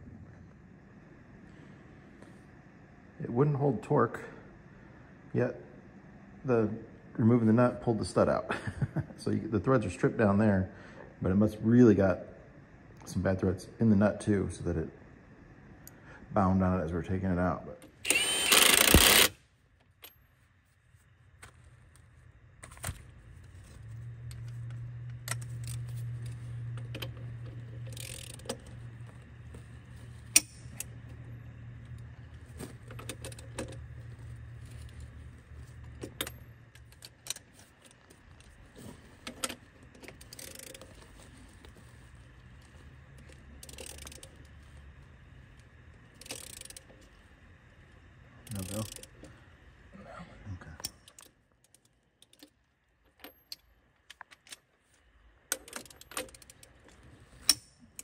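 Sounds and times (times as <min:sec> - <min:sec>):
low hum: 0:00.0 - 0:51.1
ratchet clicks: 0:17.8 - 0:19.4, 0:24.3 - 0:29.2, 0:30.3 - 0:30.9, 0:32.8 - 0:33.8, 0:39.2 - 0:41.0, 0:43.2 - 0:44.6, 0:45.6 - 0:47.2, 0:48.4 - 0:49.3, 0:50.8 - 0:54.6, 0:55.5 - 0:58.0
impact wrench burst: 0:18.0 - 0:19.4.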